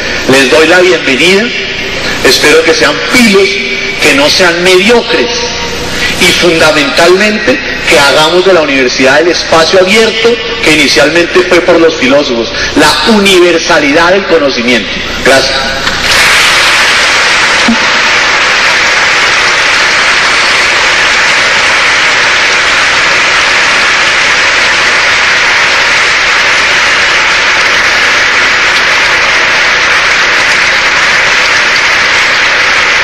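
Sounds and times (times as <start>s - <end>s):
large audience applauding: 16.0s - 33.0s.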